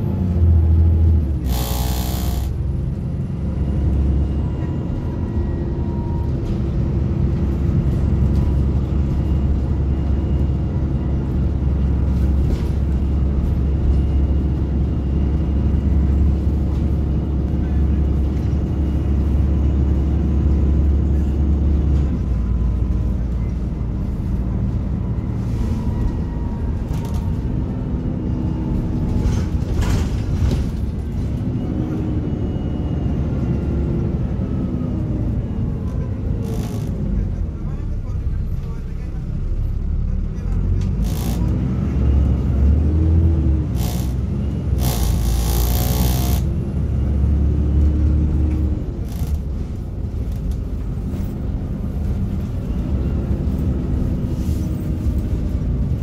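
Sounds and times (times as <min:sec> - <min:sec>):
bus engine rumble: 0:00.0 - 0:56.0.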